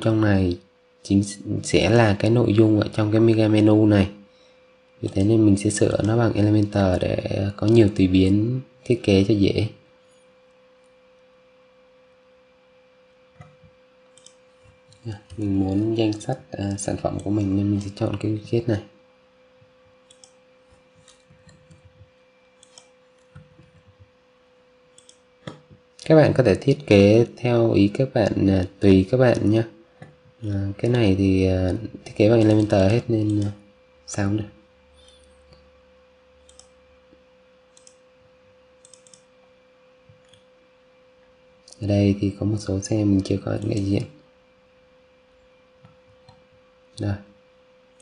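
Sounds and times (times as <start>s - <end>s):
faint steady hum: 0.0s - 48.0s
computer mouse clicks: 13.4s - 16.3s, 20.0s - 24.0s, 24.9s - 26.1s, 32.4s - 33.5s, 35.0s - 35.7s, 36.4s - 36.8s, 37.7s - 39.3s, 40.1s - 40.5s, 43.6s - 43.9s.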